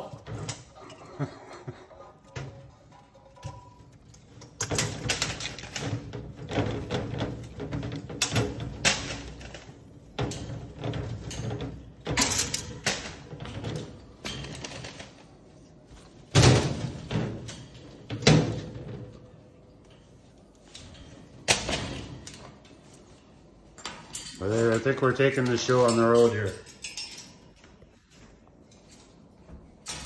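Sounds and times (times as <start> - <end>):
knocking and rattling in birdcage: 2.2 - 15.2, 16.3 - 19.4.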